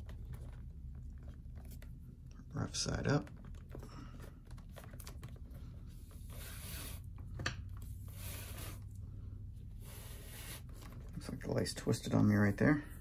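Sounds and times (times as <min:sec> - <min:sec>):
leather lace sliding through loops: 0:06.0 - 0:07.2.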